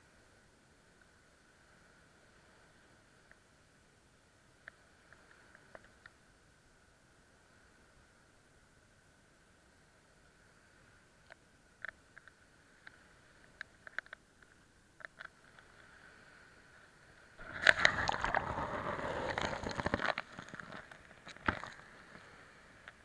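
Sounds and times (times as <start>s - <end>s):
pebbles clicking: 17.4s - 21.9s
wave washing over pebbles: 17.4s - 23.0s.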